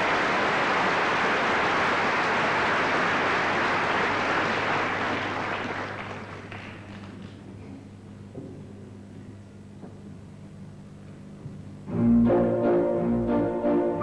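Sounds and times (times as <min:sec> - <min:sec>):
audience applause: 0:00.0 - 0:07.5.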